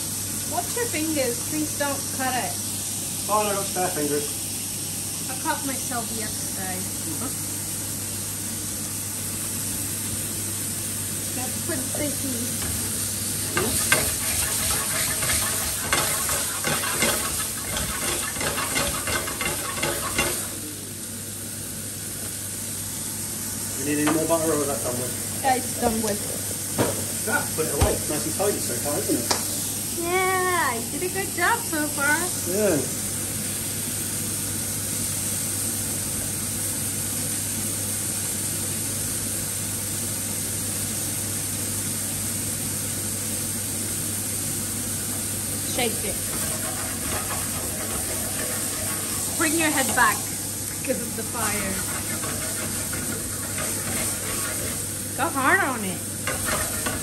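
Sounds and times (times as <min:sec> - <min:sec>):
steaks sizzling in frying pan: 0:00.0 - 0:57.0.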